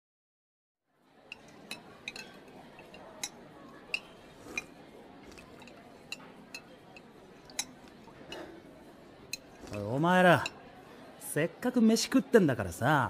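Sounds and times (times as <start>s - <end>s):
cutlery clinking against dishes: 1.2s - 10.7s.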